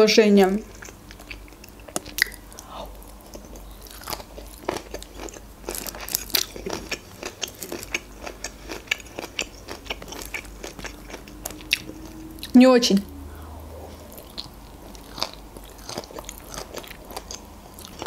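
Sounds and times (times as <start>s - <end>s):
chewing crunchy salad: 0.5s - 18.0s
wet mouth sounds: 0.7s - 4.2s.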